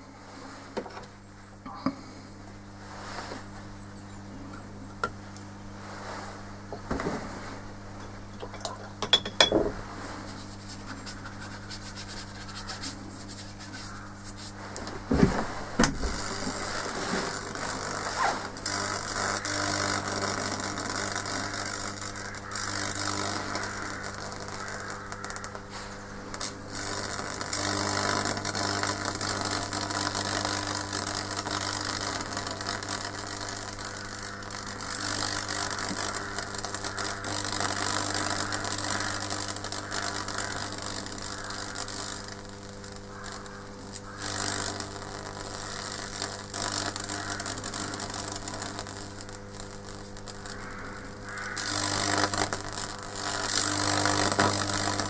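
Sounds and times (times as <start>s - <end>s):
electrical discharge crackling: 10.2s - 55.0s
transformer humming: 14.6s - 55.0s.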